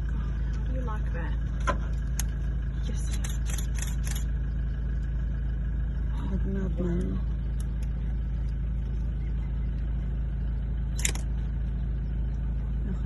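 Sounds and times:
vehicle engine idling: 0:00.0 - 0:13.0
sharp click: 0:11.0 - 0:11.3.

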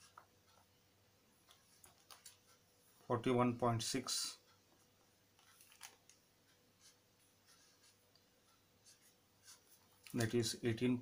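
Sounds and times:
marker scratching on paper: 0:06.8 - 0:10.0.

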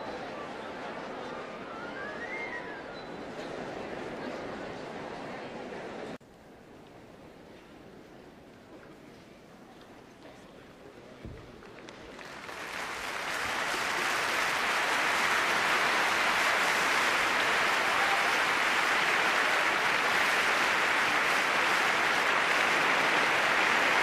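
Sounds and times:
audience applauding: 0:11.6 - 0:24.0.

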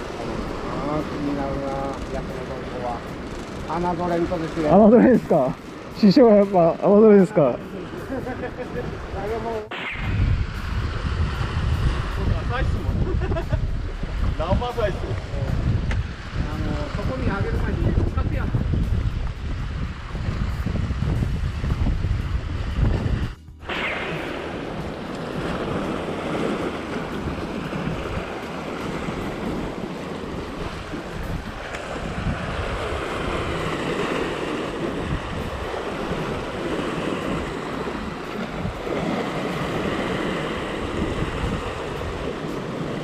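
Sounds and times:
sea surf washing in: 0:00.0 - 0:43.0
wind buffeting microphone: 0:00.0 - 0:43.0.

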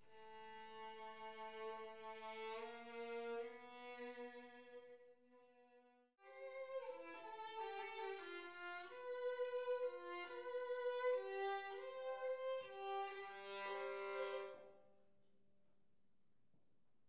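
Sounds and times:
solo violin melody: 0:00.0 - 0:05.0, 0:06.2 - 0:14.7.

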